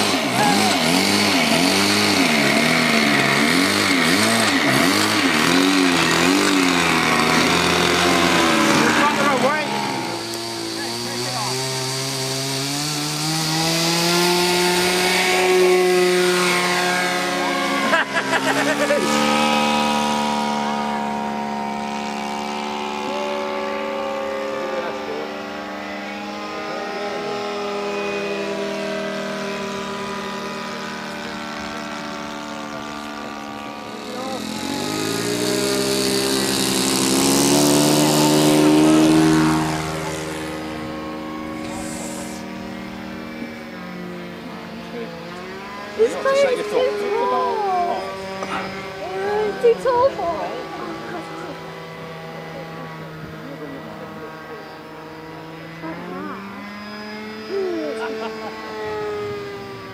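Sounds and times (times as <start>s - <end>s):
model plane engine revving: 0.0s - 59.9s.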